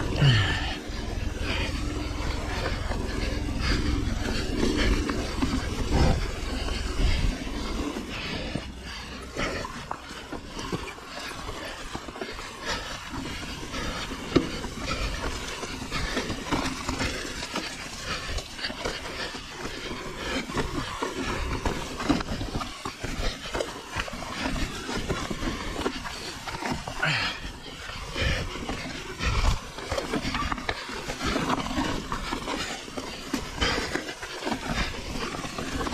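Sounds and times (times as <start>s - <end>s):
bike rattling: 0.0s - 35.9s.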